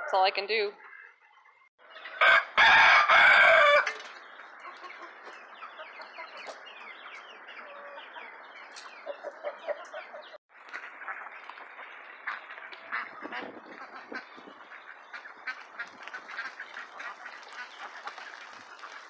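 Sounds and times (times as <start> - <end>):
chickens clucking and chirping: 0.0 - 19.0
rooster crowing: 2.2 - 4.0.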